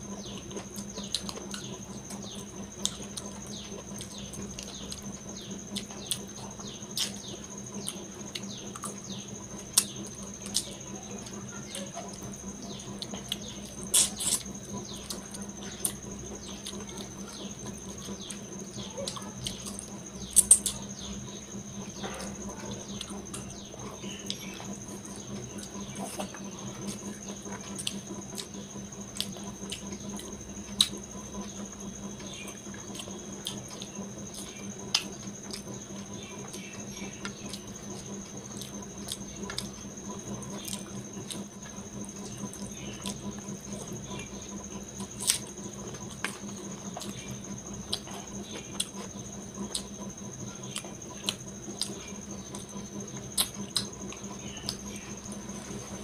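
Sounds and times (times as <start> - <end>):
faint high whine: 0.0 - 56.0
mouth smacking while chewing: 50.7 - 54.9.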